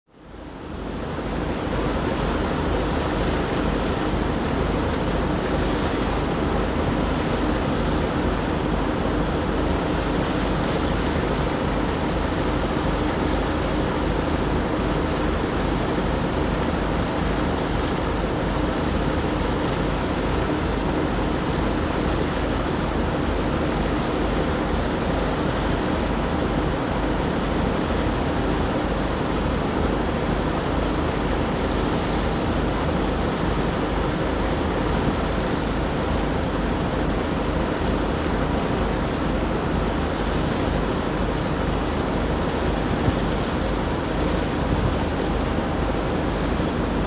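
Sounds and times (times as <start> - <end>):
boat engine drone: 0.1 - 47.0
water rushing past hull: 0.3 - 47.0.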